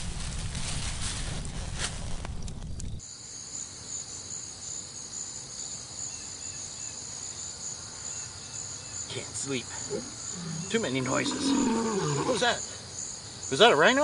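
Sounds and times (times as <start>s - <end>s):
foil blanket rustling: 0.0s - 2.4s
crickets chirping: 2.4s - 14.0s.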